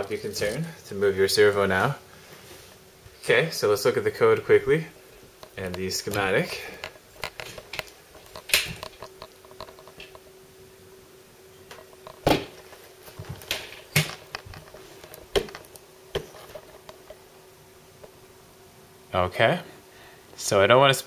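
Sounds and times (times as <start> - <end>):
faint steady hum: 0.0 - 21.0
handling clicks and knocks: 5.3 - 10.2, 11.7 - 17.2.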